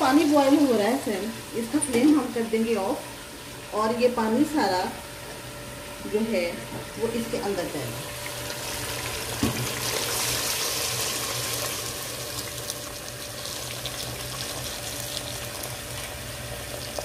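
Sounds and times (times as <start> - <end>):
hot water pouring into gravy: 8.2 - 17.0.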